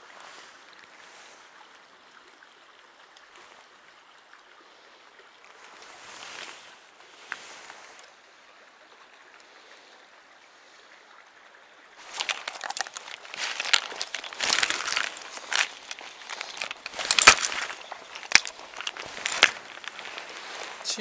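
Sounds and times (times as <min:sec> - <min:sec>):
faint stream flowing: 0:00.0 - 0:21.0
crackling handling noise: 0:12.0 - 0:21.0.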